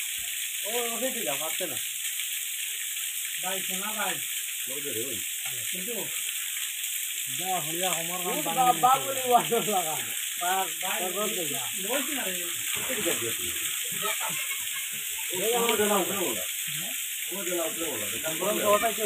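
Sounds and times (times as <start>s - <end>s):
waterfall pouring onto rock: 0.0s - 19.0s
people talking: 0.7s - 1.8s, 7.3s - 19.0s.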